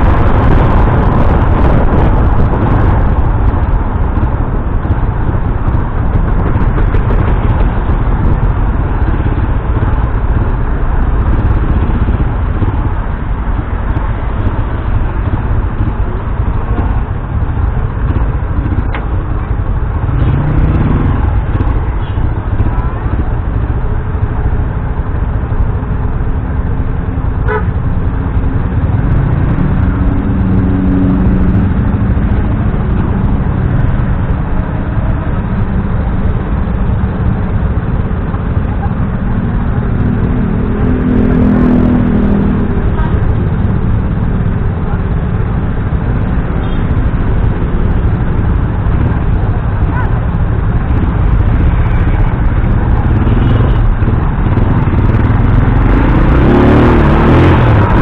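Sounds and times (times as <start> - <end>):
motorcycle engine: 0.0 - 58.0
traffic noise: 0.0 - 58.0
wind on microphone: 0.0 - 58.0
vehicle horns honking: 27.4 - 27.8.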